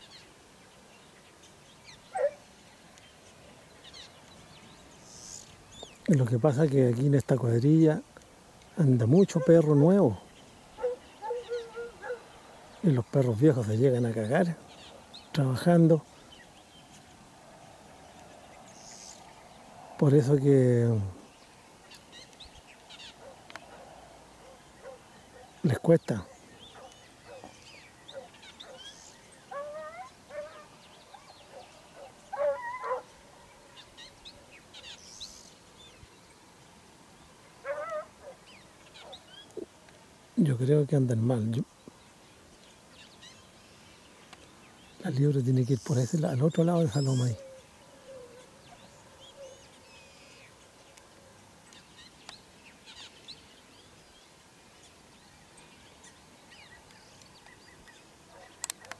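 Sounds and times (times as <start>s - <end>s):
birds chirping faintly: 0.0s - 58.9s
outdoor background hiss: 0.0s - 58.9s
distant hounds baying: 2.1s - 2.5s, 9.1s - 10.0s, 10.7s - 12.4s, 23.1s - 25.6s, 26.2s - 33.2s, 37.6s - 39.3s, 58.3s - 58.9s.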